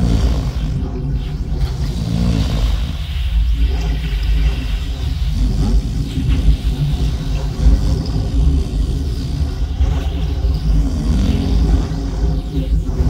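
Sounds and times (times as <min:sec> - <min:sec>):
loud low rumble: 0:00.0 - 0:13.0.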